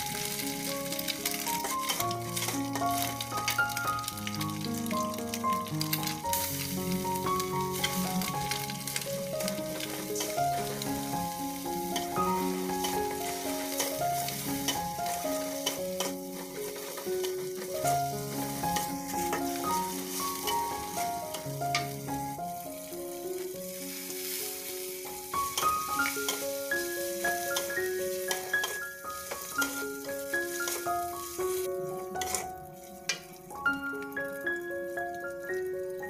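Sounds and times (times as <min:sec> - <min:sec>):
food sizzling in oil: 0:00.0 - 0:36.0
melody of held notes: 0:00.0 - 0:36.0
steel spatula scraping a wok: 0:01.3 - 0:03.1, 0:07.6 - 0:21.4, 0:23.8 - 0:31.6, 0:32.2 - 0:32.5.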